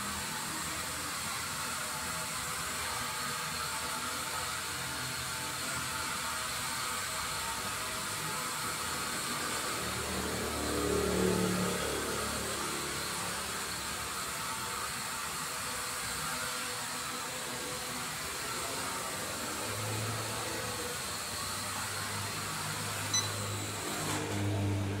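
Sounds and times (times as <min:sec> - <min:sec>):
drone propellers whirring: 0:06.8 - 0:25.0
short high beep: 0:23.1 - 0:23.6.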